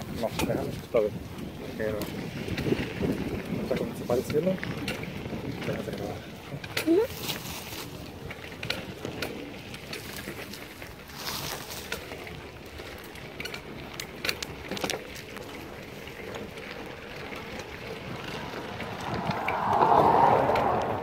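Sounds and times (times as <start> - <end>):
wind on microphone: 0.0 - 10.3, 17.3 - 21.0
bike clicks and rattles: 0.0 - 21.0
bike tyres on dirt: 0.0 - 21.0
rushing noise: 18.6 - 21.0.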